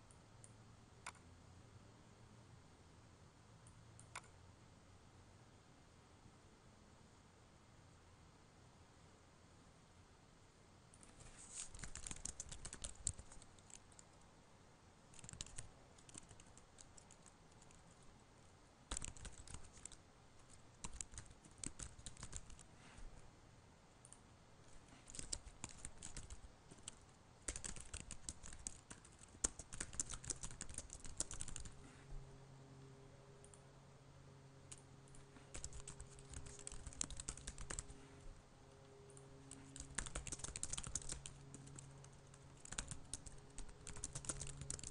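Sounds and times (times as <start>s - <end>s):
faint low hum: 0.0s - 44.9s
typing on computer keyboard: 11.0s - 14.1s, 15.1s - 18.0s, 18.9s - 22.7s, 24.9s - 31.8s, 34.7s - 38.0s, 39.4s - 44.9s.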